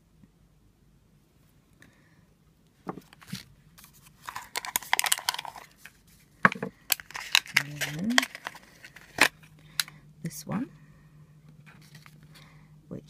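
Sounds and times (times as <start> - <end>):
plastic packaging crinkling: 3.0 - 10.0, 11.6 - 12.5.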